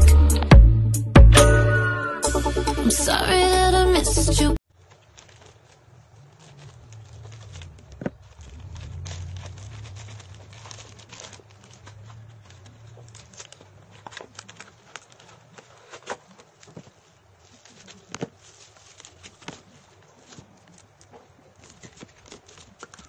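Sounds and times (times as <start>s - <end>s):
wrapping rustling and crinkling: 4.7s - 23.0s
scissors snipping paper: 4.9s - 17.0s, 17.6s - 23.0s.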